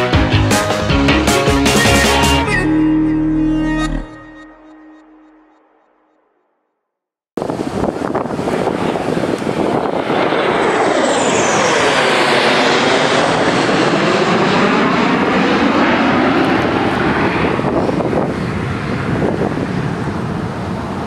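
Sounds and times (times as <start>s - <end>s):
fighter jets roaring overhead: 7.4s - 21.0s
high jet whine: 7.4s - 21.0s.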